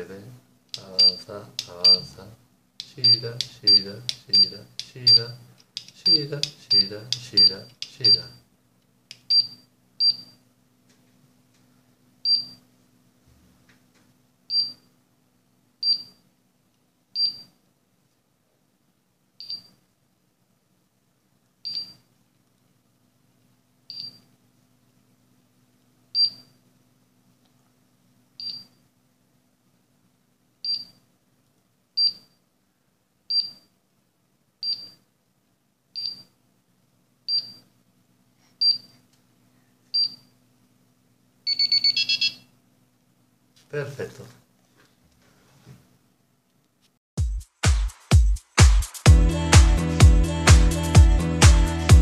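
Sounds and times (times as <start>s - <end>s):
short high buzzer beeps: 41.5s - 42.4s.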